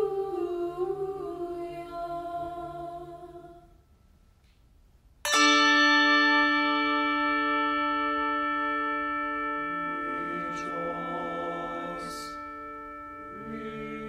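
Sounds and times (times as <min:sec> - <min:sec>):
choir singing a cappella chord: 0:00.0 - 0:03.8, 0:09.7 - 0:14.0
bell ringing: 0:05.3 - 0:14.0.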